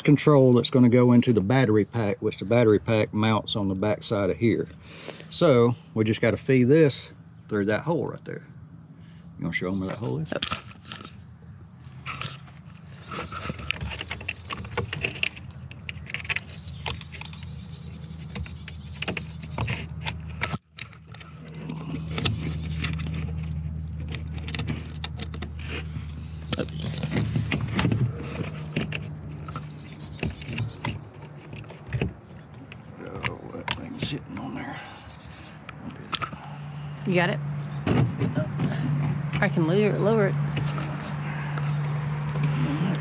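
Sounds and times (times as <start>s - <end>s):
steady low hum: 0.0s - 43.0s
clicks and knocks of handle parts: 12.0s - 34.5s, 35.6s - 36.5s, 40.4s - 42.6s.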